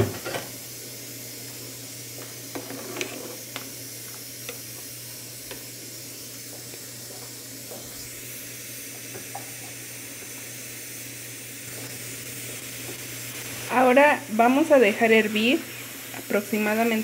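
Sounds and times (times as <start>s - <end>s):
steady hiss: 0.0s - 17.0s
metal spoon stirring in pot: 2.5s - 3.6s.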